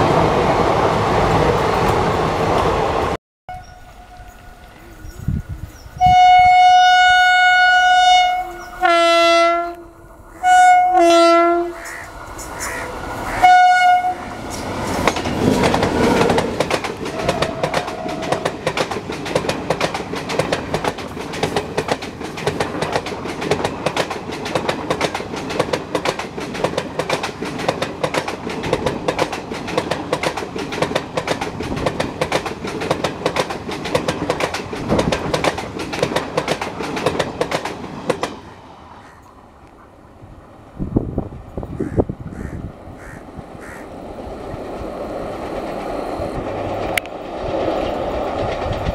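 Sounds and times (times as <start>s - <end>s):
locomotive horn blasts: 6.0s - 12.1s, 13.3s - 14.3s, 17.1s - 18.4s
train wheels clattering over rails: 14.4s - 38.5s, 43.6s - 48.9s.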